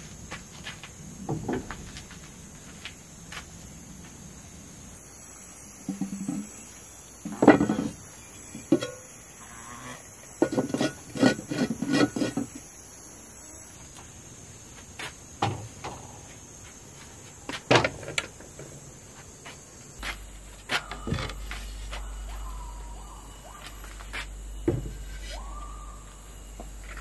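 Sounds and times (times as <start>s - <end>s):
clay pots knocking and clinking: 7.2s - 8.0s.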